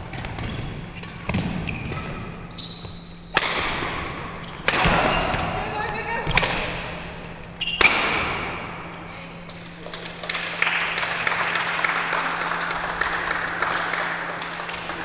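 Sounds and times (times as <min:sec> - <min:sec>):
applause: 0:09.8 - 0:15.0.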